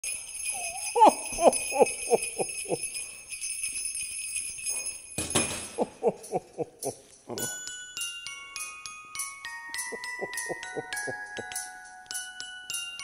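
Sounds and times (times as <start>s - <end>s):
sleigh bells jingling: 0.0s - 13.0s.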